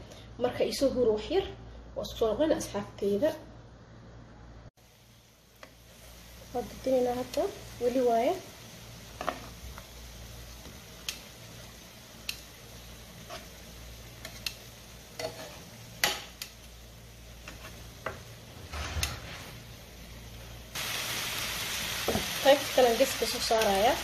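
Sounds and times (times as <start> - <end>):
quiet sizzle: 0.0 - 24.0
metal tongs clicking on grill pan: 11.0 - 11.3, 12.2 - 12.5, 14.2 - 15.4, 16.0 - 16.6, 23.5 - 23.8.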